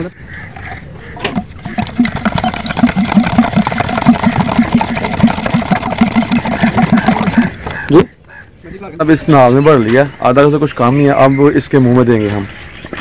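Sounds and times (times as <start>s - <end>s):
stirring water in a steel mug: 1.6s - 7.5s.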